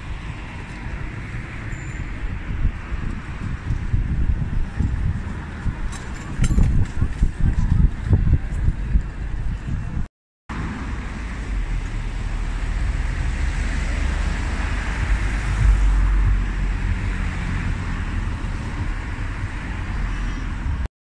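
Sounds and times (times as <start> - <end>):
wind buffeting microphone: 0.0 - 10.1, 11.4 - 20.9
road traffic tyre noise: 0.0 - 20.9.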